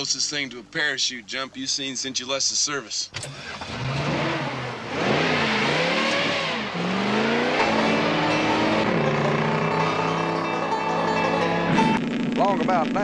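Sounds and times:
car engine revving hard: 0:03.2 - 0:10.4.

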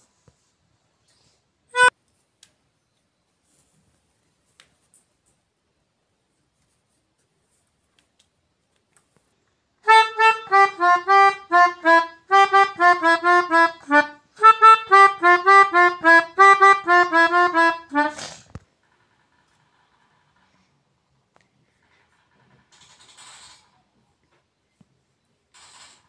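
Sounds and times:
melodica playing simple tune: 0:01.7 - 0:02.0, 0:09.8 - 0:18.3.

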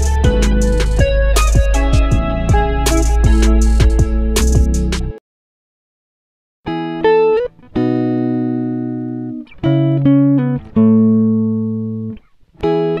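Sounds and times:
plucked chords ringing out: 0:00.0 - 0:05.2.

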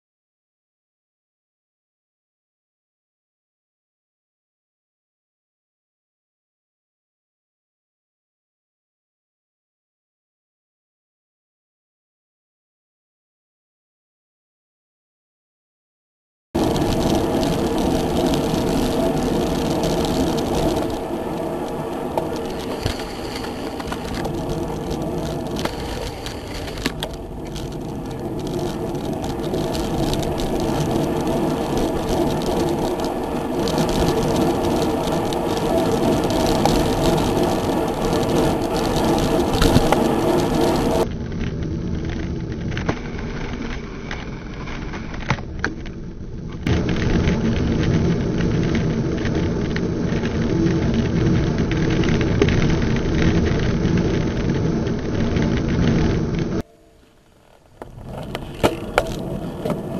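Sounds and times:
sharp clicks and rattles: 0:16.6 - 0:41.0
wind and road rumble: 0:16.6 - 0:59.9.

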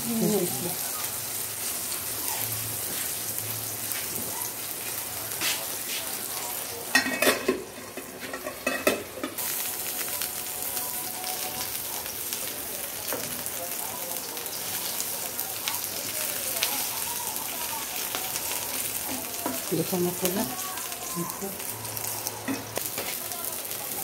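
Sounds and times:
eggplants sizzling in hot oil: 0:00.0 - 0:24.0
metal pan lid clanking: 0:06.9 - 0:09.4.

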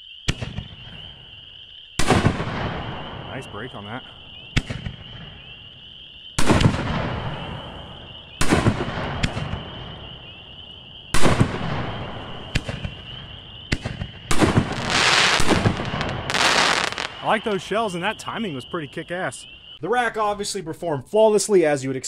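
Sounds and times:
firework shells booming: 0:00.2 - 0:01.4, 0:02.0 - 0:19.6
dense firework crackling: 0:00.3 - 0:19.8
sharp cracks: 0:02.0 - 0:05.6, 0:06.4 - 0:07.6, 0:08.4 - 0:10.0, 0:11.1 - 0:18.4.

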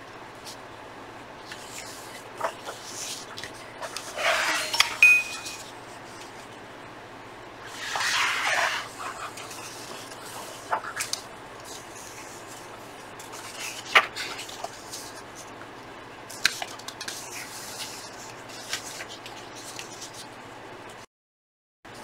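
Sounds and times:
magazine pages rustling: 0:01.4 - 0:05.0, 0:07.8 - 0:15.6, 0:16.3 - 0:20.3.

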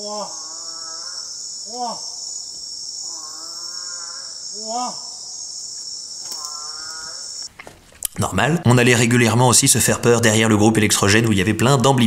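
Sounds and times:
frog calls rising and falling: 0:00.0 - 0:02.2, 0:03.0 - 0:05.2, 0:06.2 - 0:07.5
high-pitched insect buzz: 0:00.0 - 0:07.5.

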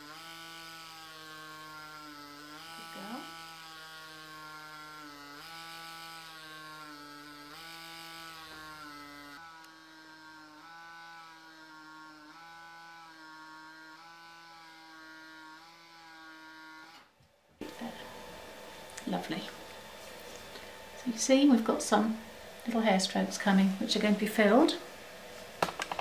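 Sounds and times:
tattoo pen buzzing: 0:00.0 - 0:19.1.

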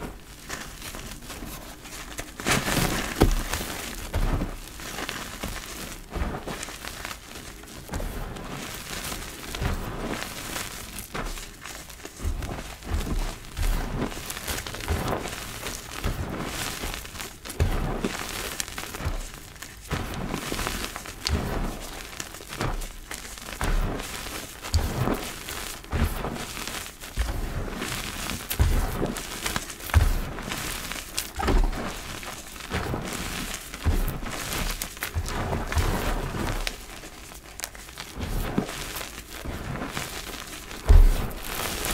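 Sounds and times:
chalk crunching under hands: 0:08.5 - 0:41.9.

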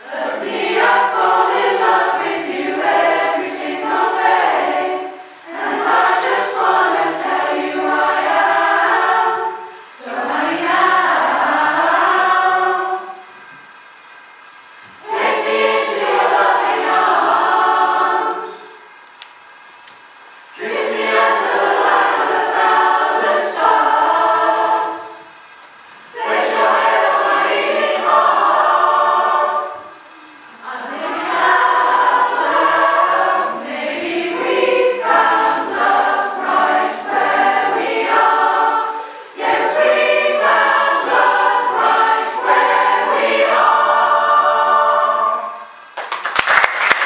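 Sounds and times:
choir singing a cappella: 0:00.0 - 0:13.6, 0:15.0 - 0:19.0, 0:20.5 - 0:46.0
audience applause: 0:46.0 - 0:47.0.

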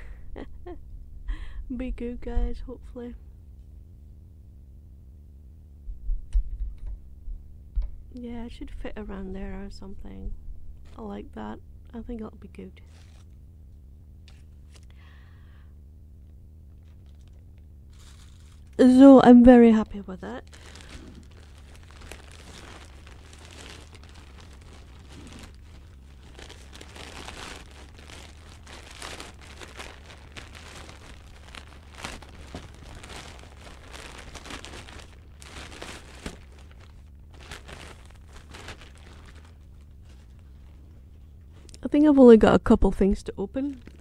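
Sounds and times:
steady low hum: 0:00.0 - 0:44.0
plastic package crinkling: 0:16.7 - 0:18.8, 0:20.2 - 0:40.9, 0:43.5 - 0:44.0.

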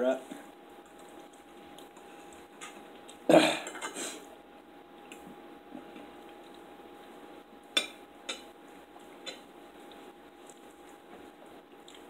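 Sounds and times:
cutlery clinking on plates: 0:03.6 - 0:04.0.

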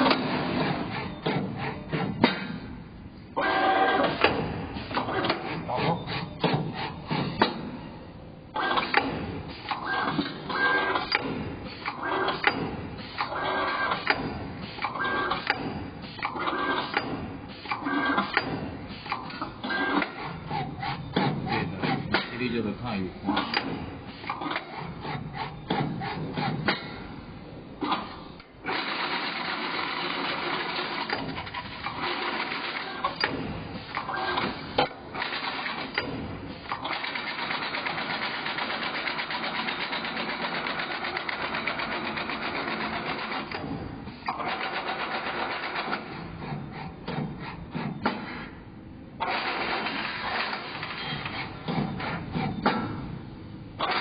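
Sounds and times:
sharp clicks and knocks: 0:04.0 - 0:05.6, 0:06.4 - 0:07.8, 0:08.7 - 0:22.7, 0:23.3 - 0:27.0, 0:30.4 - 0:48.5, 0:49.2 - 0:53.1
metal bending machine running: 0:28.0 - 0:46.9.

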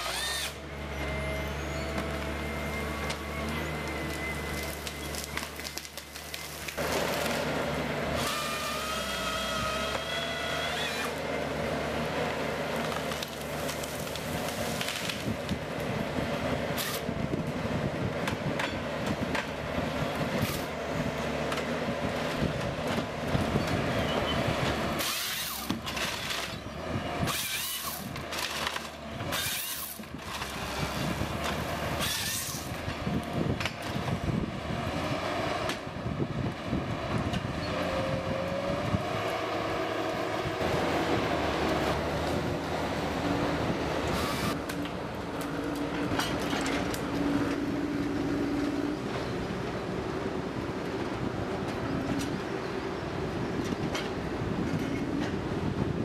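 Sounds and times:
diesel engine and hydraulics: 0:00.0 - 0:56.0
wood cracking and branches snapping: 0:03.8 - 0:07.5, 0:12.3 - 0:15.9, 0:44.1 - 0:47.6.

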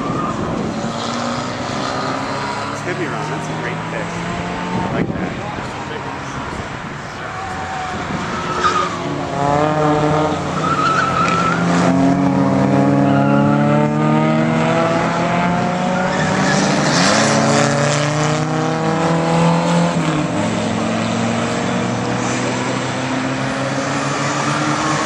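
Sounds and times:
race car engines accelerating: 0:00.0 - 0:25.0
tyre squeals: 0:07.2 - 0:09.2, 0:09.8 - 0:11.8, 0:12.9 - 0:13.6, 0:15.9 - 0:17.2, 0:23.8 - 0:25.0.

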